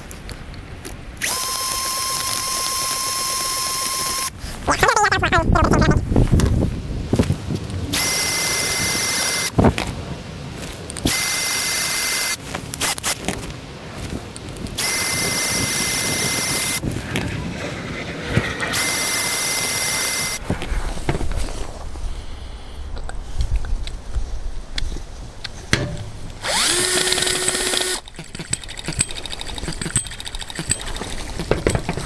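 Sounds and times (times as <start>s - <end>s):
cordless drill whining: 1.2s - 4.4s, 8.0s - 9.5s, 11.1s - 12.4s, 14.8s - 16.8s, 18.7s - 20.4s, 26.4s - 30.8s.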